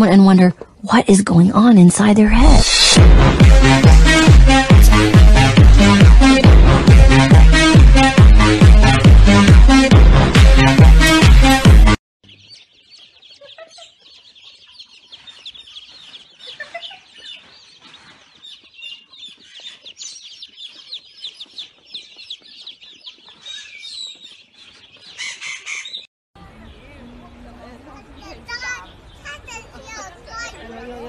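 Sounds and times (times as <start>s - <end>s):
loud music: 2.6s - 12.0s
baby chicks peeping: 12.2s - 31.0s.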